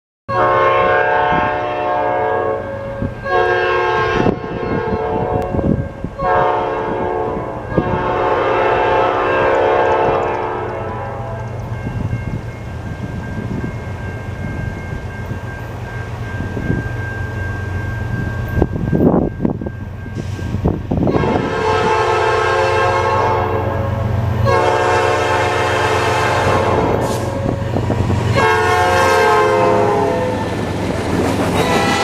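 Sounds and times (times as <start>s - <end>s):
locomotive air horn blasts: 0.3s - 11.6s, 20.2s - 30.6s, 31.5s - 32.0s
diesel locomotive rumble: 0.5s - 32.0s.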